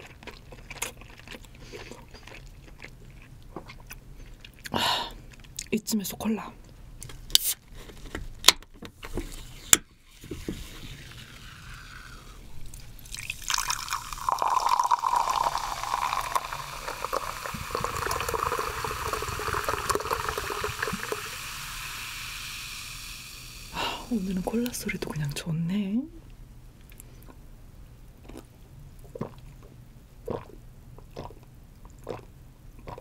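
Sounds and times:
cola pouring and fizzing: 10.1s - 25.1s.

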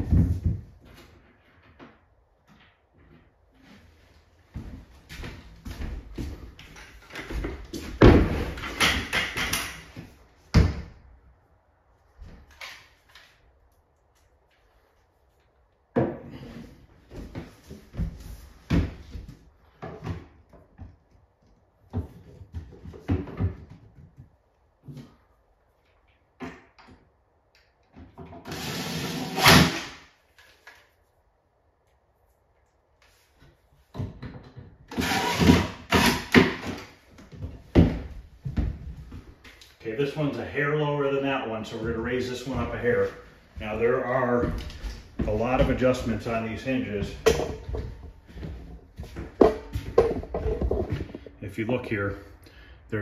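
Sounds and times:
cordless drill driving screw: 28.4s - 29.6s, 34.9s - 36.2s.

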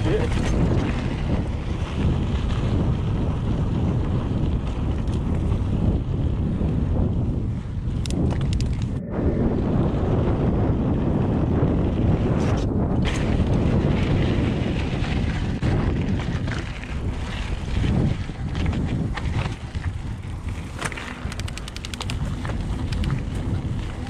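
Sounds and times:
bike clicks and rattles: 0.0s - 9.0s, 12.4s - 24.0s
bike tyres rumbling on dirt: 0.0s - 24.0s
wind buffeting microphone: 0.0s - 24.0s
quick even run of clicks: 8.0s - 9.0s, 20.8s - 23.2s.

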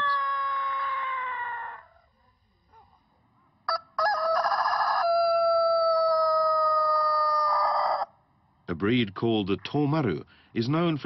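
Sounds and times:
rooster crowing: 0.0s - 2.1s, 3.7s - 8.1s.

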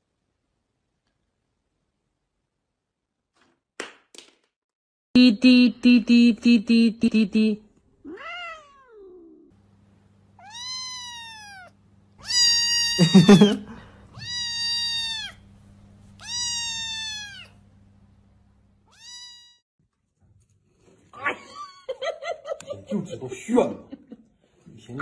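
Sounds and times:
cat meowing: 8.0s - 9.5s, 10.4s - 15.4s, 16.2s - 17.6s, 18.9s - 19.6s.

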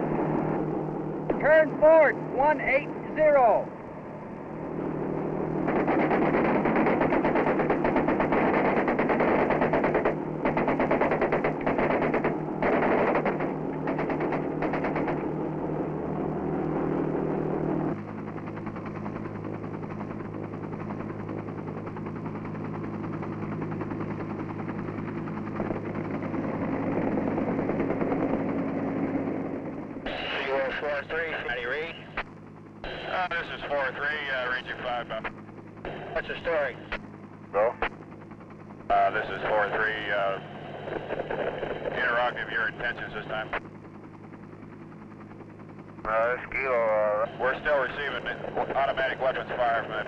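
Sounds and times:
machine-gun fire bursts: 5.6s - 15.3s.

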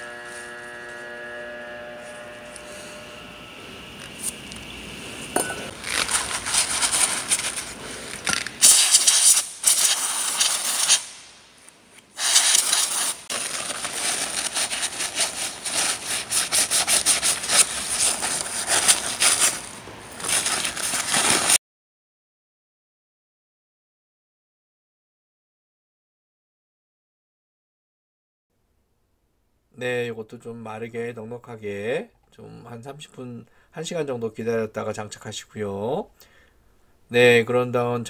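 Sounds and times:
paper towel scrubbing: 5.7s - 11.3s, 12.2s - 21.6s
aerosol spray hissing: 8.6s - 11.4s, 12.2s - 13.3s.

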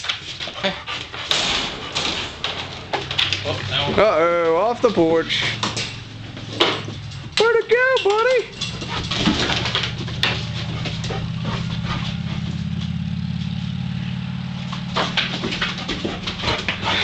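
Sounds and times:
engine idling: 0.0s - 17.0s
puppy claws on wooden boards: 4.9s - 13.0s, 14.7s - 17.0s.

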